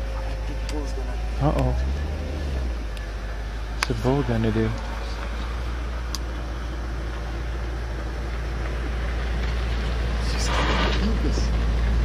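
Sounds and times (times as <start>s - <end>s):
low outdoor rumble with hiss: 0.0s - 12.0s.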